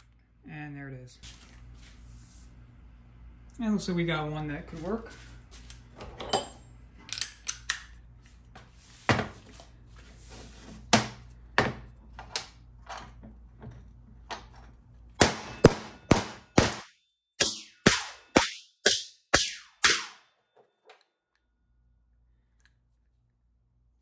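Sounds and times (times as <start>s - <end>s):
hammer striking metal: 15.2s - 20.3s.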